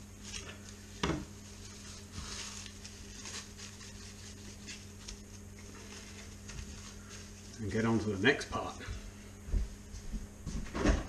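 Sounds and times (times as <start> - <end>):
cling film crinkling: 0.2 - 7.9.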